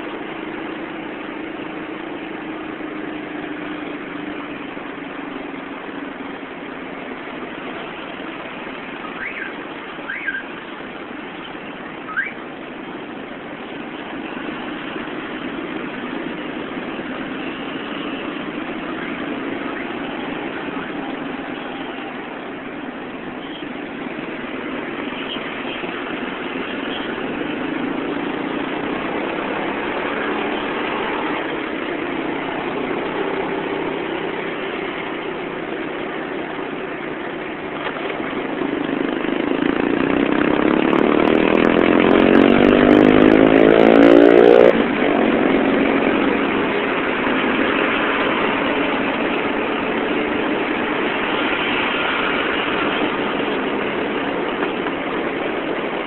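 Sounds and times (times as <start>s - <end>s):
traffic hum: 0.0s - 56.0s
motorcycle engine revving: 23.9s - 56.0s.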